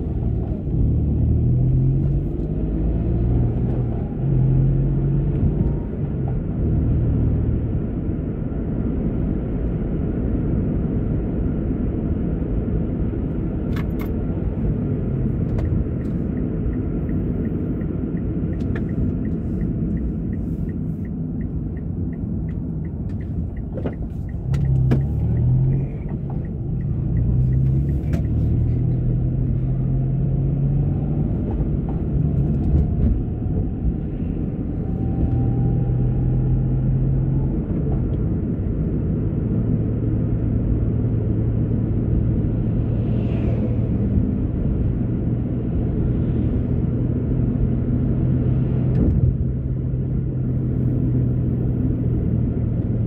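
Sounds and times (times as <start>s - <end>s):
car engine and tyre rumble: 0.0s - 53.0s
light regular ticking: 15.9s - 28.4s.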